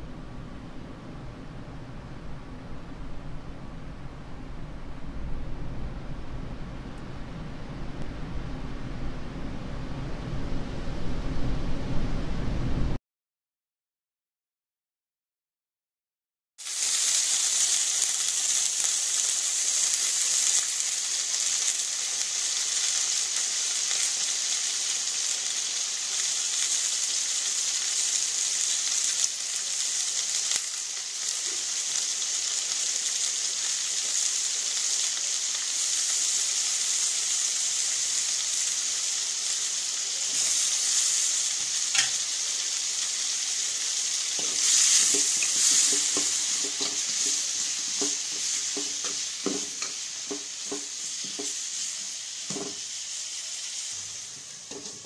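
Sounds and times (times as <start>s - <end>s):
food sizzling in hot oil: 16.6s - 55.0s
spatula scraping a pan: 44.4s - 51.9s.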